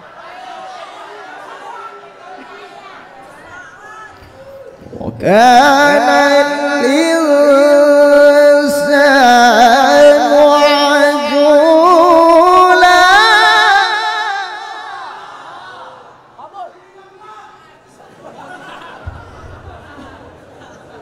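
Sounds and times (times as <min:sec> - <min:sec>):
man chanting melodically into microphone: 0:04.8 - 0:15.0.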